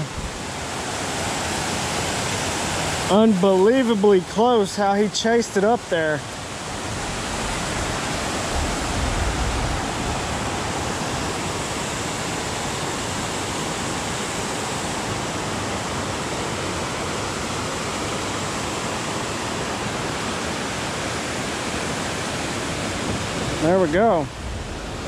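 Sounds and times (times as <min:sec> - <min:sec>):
water rushing through spillway: 0:00.0 - 0:25.0.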